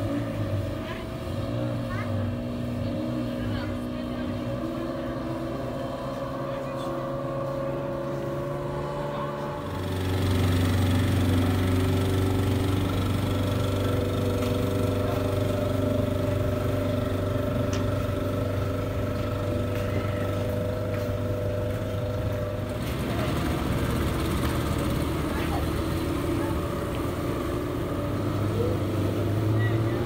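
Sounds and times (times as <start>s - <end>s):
outboard motors droning: 0.0s - 30.0s.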